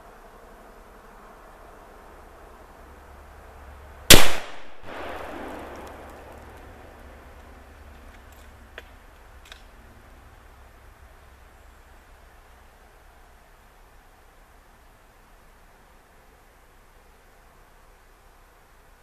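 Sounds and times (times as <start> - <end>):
rifle shot with echo: 4.1 - 6.3.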